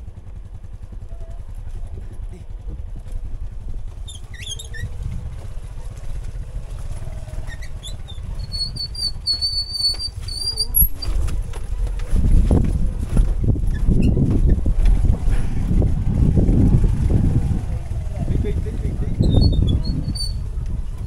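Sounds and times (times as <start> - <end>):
motorbike engine running low: 0.0 - 21.0
short high squeaks: 4.0 - 5.0, 7.2 - 11.5, 19.2 - 20.6
high-pitched brake squeal: 7.4 - 11.2, 19.2 - 20.4.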